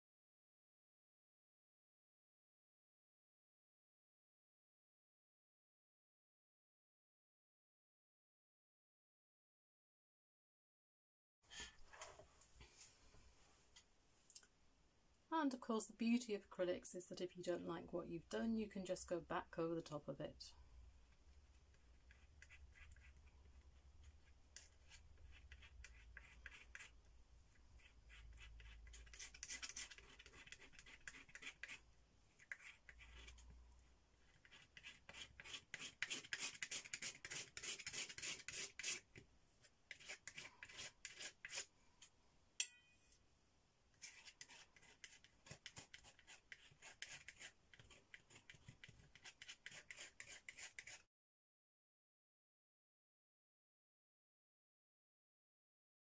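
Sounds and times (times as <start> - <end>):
palette knife scraping paint: 21.7 - 27.0, 27.7 - 31.8, 32.4 - 33.5, 34.2 - 41.7, 44.0 - 51.1.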